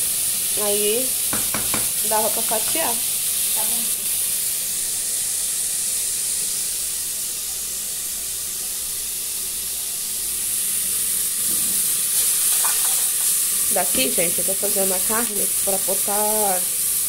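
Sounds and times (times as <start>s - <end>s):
meat sizzling in a pan: 0.0s - 17.0s.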